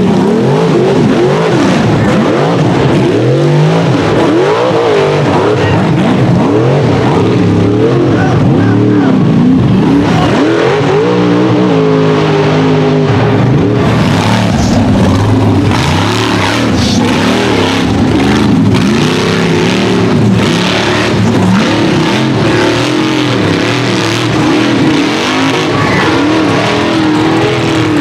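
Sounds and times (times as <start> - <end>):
buggy engine revving: 0.0 - 28.0.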